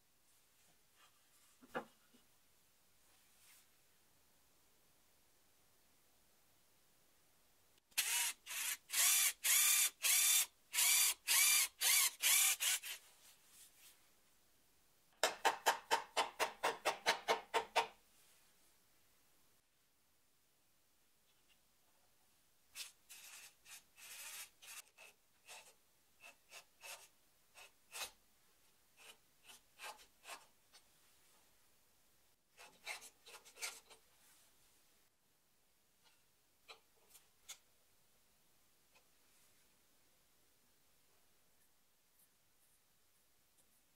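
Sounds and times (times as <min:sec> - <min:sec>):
cordless driver driving screw: 0:08.0 - 0:13.0
power drill boring into wood: 0:08.0 - 0:13.0, 0:23.1 - 0:24.8.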